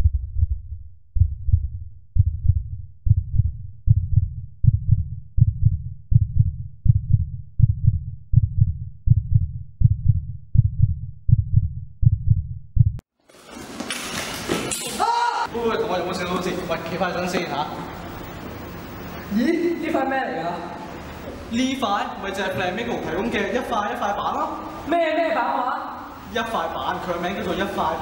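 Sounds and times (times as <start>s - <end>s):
heartbeat thumps: 0.0s - 13.0s.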